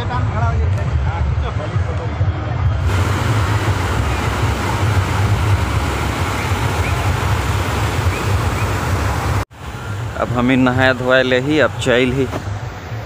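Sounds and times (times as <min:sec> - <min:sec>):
water roaring over rocks: 0:02.8 - 0:11.1.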